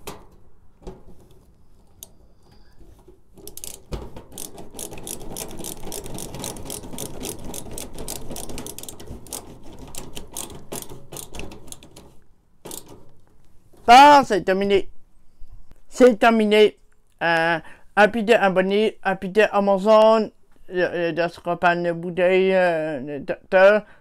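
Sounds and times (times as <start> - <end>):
screwdriver clicking and grinding: 2.9 - 13.1.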